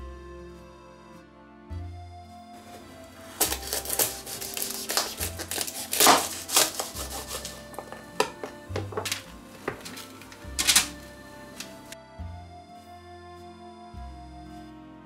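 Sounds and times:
soft background music: 0.0 - 15.0
knife cutting garlic on board: 2.6 - 11.0.

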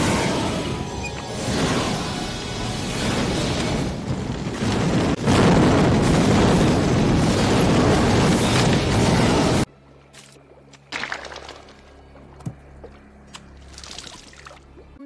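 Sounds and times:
low rumble: 0.0 - 9.7
underwater electrical arcing crackle: 1.3 - 9.7.

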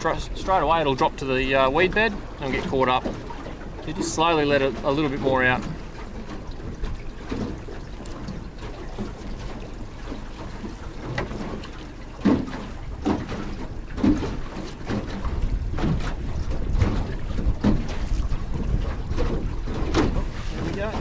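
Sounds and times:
motor rumble: 0.0 - 21.0
water slapping against hull: 0.0 - 21.0
wind noise: 15.1 - 21.0.

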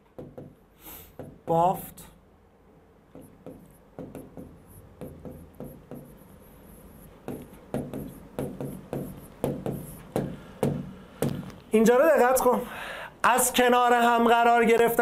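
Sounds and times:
stylus tapping on touchscreen: 3.1 - 6.3, 7.2 - 11.6.

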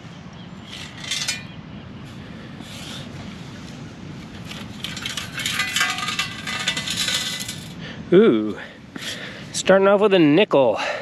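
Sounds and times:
light metal clinks: 0.7 - 1.6, 4.6 - 7.8
metal scoop sifting sand: 4.4 - 7.8.

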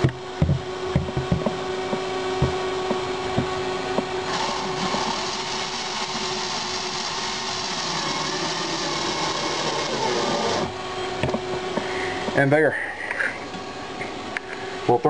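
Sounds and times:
cordless drill driving a screw: 4.3 - 10.7.

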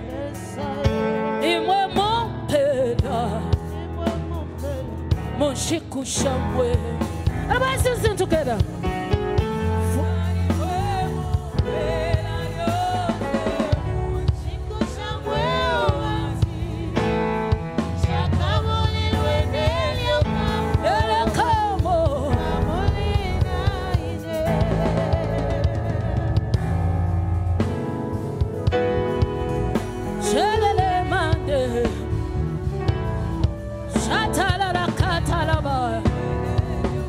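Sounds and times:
woman singing with vibrato: 0.0 - 4.1, 9.8 - 26.6, 30.2 - 32.1, 33.9 - 37.0
band playing: 0.0 - 37.0.

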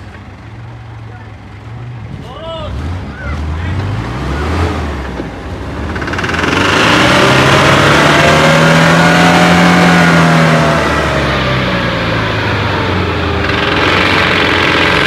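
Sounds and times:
engine revving hard: 2.6 - 15.0.

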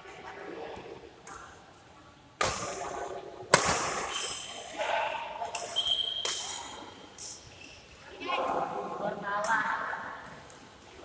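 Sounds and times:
rackets hitting shuttlecock: 2.4 - 4.7, 5.5 - 7.4
shoe squeak on court floor: 5.6 - 7.9.

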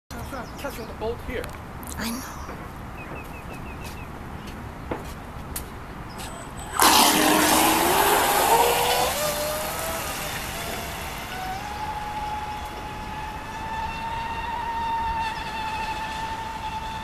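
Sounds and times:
electric motor whine rising: 6.4 - 17.0
rush of water spray: 6.7 - 12.6.

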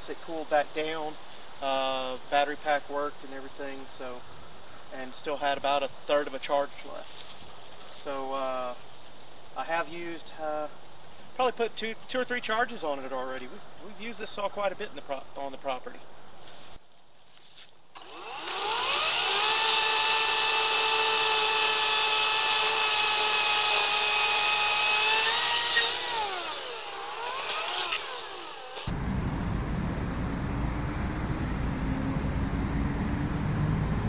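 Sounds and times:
electric chainsaw whining: 18.0 - 28.9
road traffic rumble: 25.9 - 34.0.

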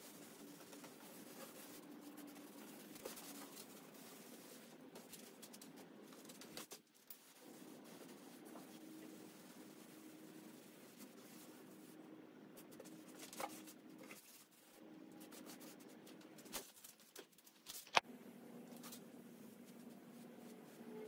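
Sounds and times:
scratching and rubbing on wood: 0.0 - 11.9.

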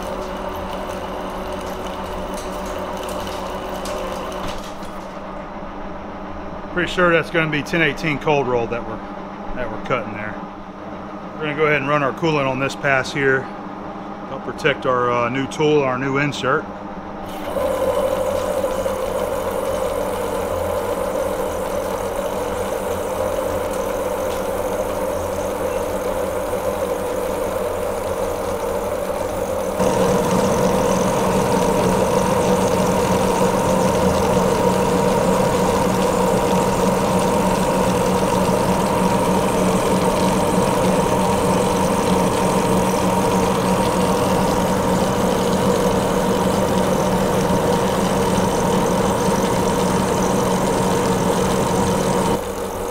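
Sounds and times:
lathe machine hum: 0.0 - 5.4, 17.2 - 52.9.

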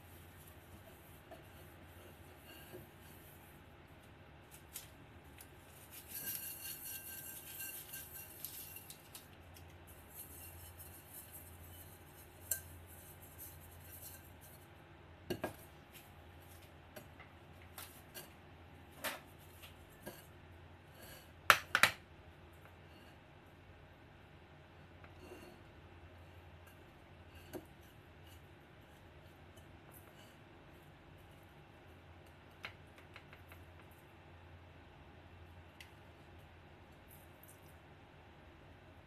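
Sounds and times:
scratchy rustle: 4.5 - 9.2.

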